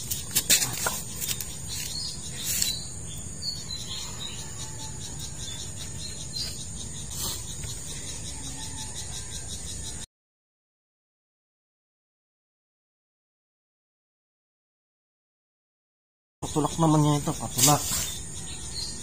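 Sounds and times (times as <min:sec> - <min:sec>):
crickets chirring: 0:00.0 - 0:10.0, 0:16.4 - 0:19.0.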